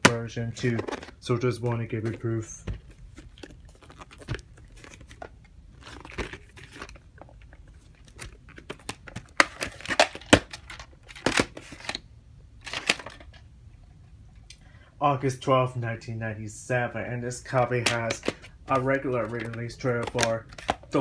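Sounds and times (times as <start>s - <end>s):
rustling: 0.6s - 12.0s.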